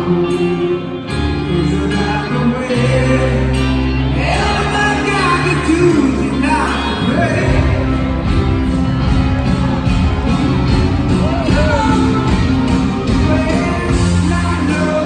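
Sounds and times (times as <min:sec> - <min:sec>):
person singing: 0:00.0 - 0:08.1, 0:11.2 - 0:15.0
rock ballad on piano and band: 0:00.0 - 0:15.0.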